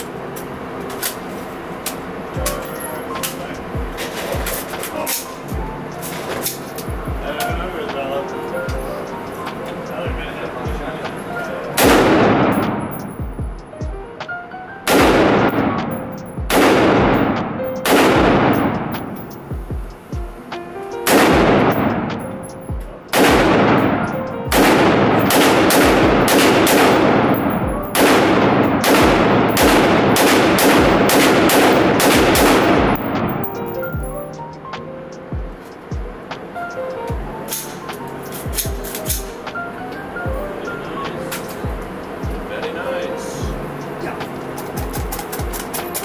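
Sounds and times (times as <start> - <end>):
rifle shots echoing: 11.8 - 13.4, 14.9 - 19.5, 21.1 - 34.3.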